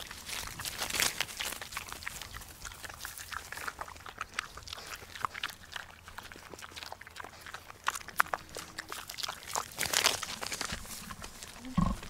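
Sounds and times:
animal clicking noises: 0.0 - 12.0
animal calls: 10.8 - 12.0.

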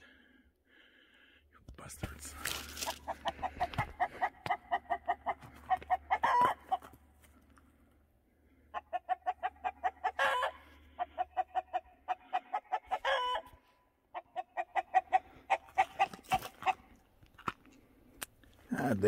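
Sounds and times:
chicken clucking: 2.7 - 7.2, 8.6 - 17.0
chicken squawks: 2.8 - 6.9, 8.7 - 16.9.

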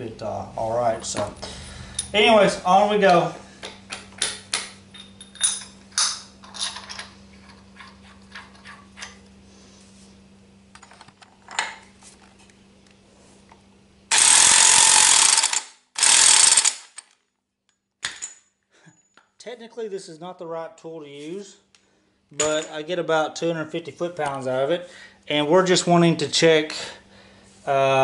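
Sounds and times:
metal clinks and knocks: 4.0 - 9.2
electric impact wrench bursts: 14.1 - 17.1.

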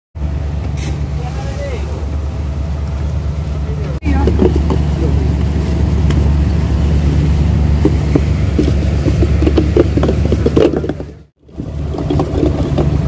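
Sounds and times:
boat engine droning: 0.2 - 13.0.

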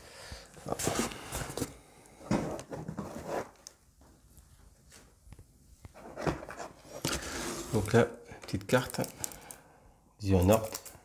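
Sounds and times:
cardboard box rustling and scraping: 2.4 - 3.6, 6.0 - 8.0.

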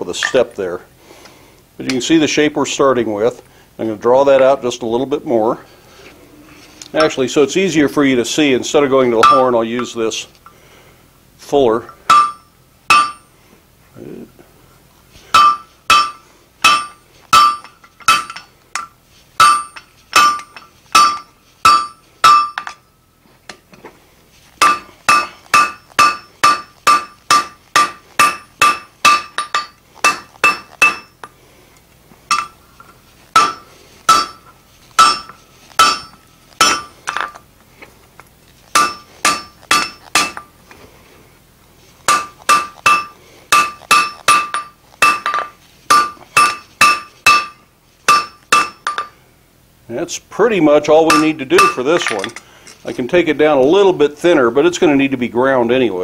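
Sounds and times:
hammer striking hot steel on anvil: 9.2 - 10.0, 12.1 - 13.3, 15.3 - 22.8, 24.6 - 31.3, 32.3 - 37.3, 38.7 - 40.5, 42.1 - 49.2, 51.1 - 52.4.

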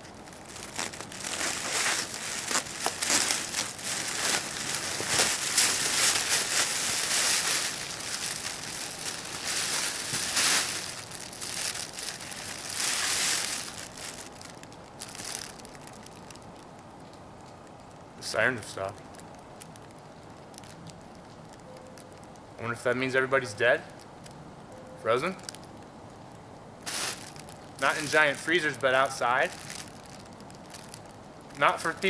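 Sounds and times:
foil blanket crinkling: 0.0 - 16.7, 26.8 - 32.0.

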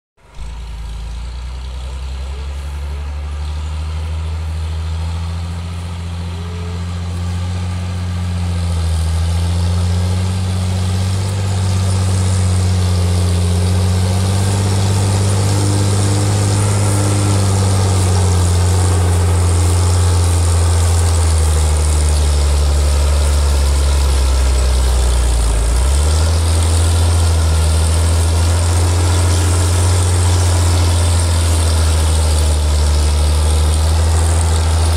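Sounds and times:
tractor diesel engine working: 0.2 - 34.9.

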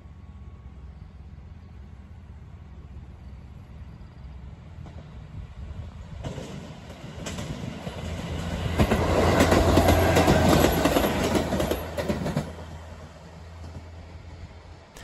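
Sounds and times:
diesel railcar engine hum: 0.0 - 15.0
wheels clattering over rail joints: 6.2 - 12.8.

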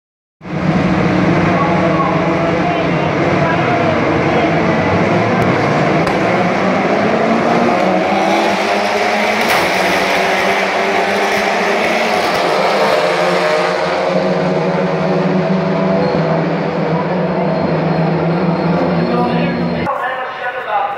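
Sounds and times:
racing car engines revving: 0.4 - 19.9.

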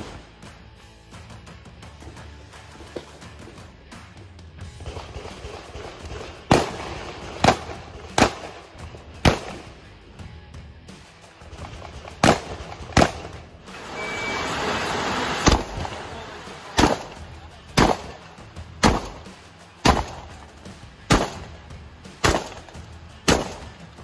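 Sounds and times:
shotgun shots: 4.7 - 9.8, 11.4 - 13.5, 15.3 - 24.0
rushing noise: 13.7 - 17.2.

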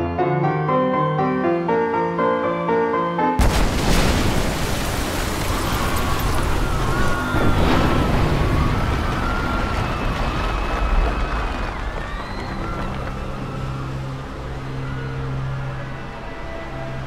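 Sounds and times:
explosion rumbling roar: 3.4 - 12.4.

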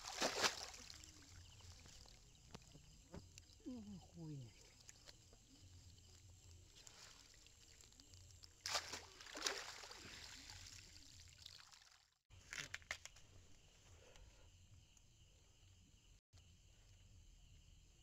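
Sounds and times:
water pouring off a net: 0.0 - 2.2, 6.8 - 12.2
water dripping: 0.0 - 12.0
small splashes: 0.0 - 12.2.

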